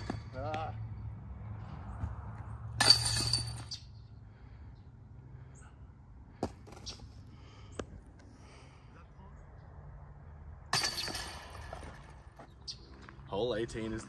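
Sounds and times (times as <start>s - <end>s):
disc golf basket chains jangling: 2.8s - 3.9s, 10.8s - 12.4s.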